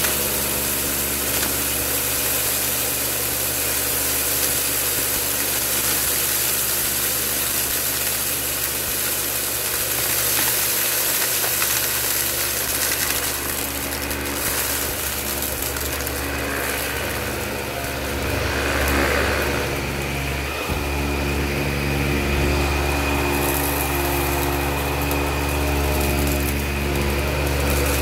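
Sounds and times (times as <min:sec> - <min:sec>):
debris clicking up vacuum: 0:00.0 - 0:28.0
vacuum cleaner humming: 0:00.0 - 0:28.0.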